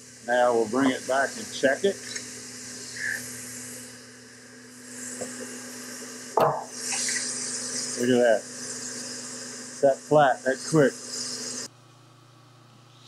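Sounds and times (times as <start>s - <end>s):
machine hum: 0.0s - 13.0s.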